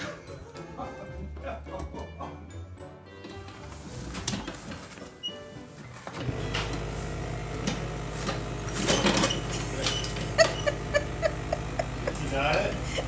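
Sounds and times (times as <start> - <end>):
steady low hum: 6.4 - 13.0.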